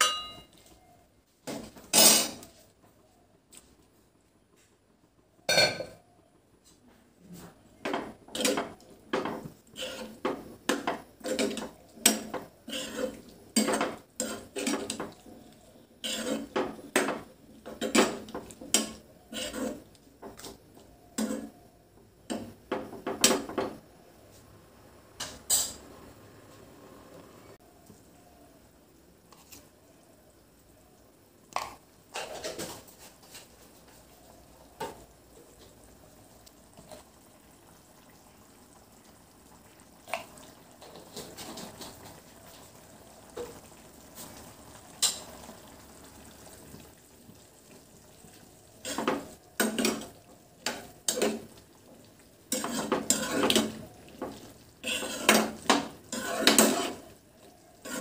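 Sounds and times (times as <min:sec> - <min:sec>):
metal spoon stirring in pan: 0:07.8 - 0:21.6, 0:31.6 - 0:35.1, 0:48.3 - 0:58.0.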